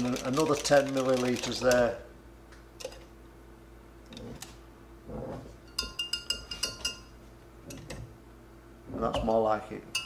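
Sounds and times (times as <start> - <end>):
whisk clinking on glass: 5.7 - 7.1.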